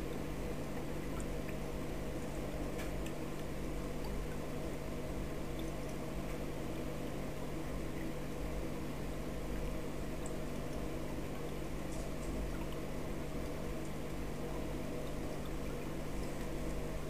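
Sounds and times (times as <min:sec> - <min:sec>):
aquarium pump humming: 0:00.0 - 0:17.0
water churning and bubbling: 0:00.0 - 0:17.0.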